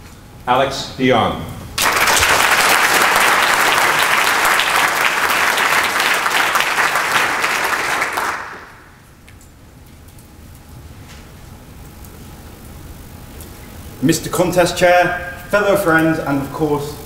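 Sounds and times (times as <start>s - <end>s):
audience applauding: 1.8s - 9.0s.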